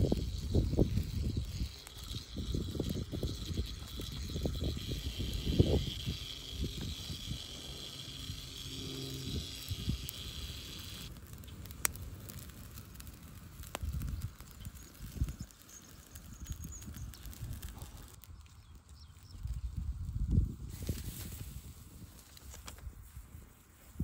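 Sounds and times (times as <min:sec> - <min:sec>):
high-pitched background drone: 0:00.0 - 0:11.1
burning wood popping: 0:00.0 - 0:24.0.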